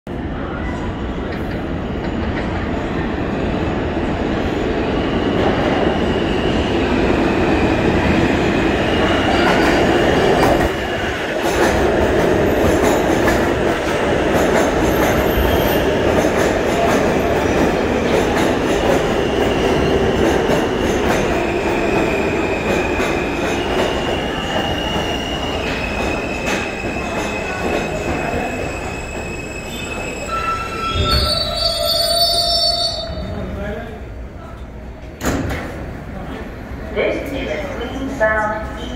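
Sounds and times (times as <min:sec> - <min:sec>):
high-pitched wheel squeals: 0:28.3 - 0:33.3.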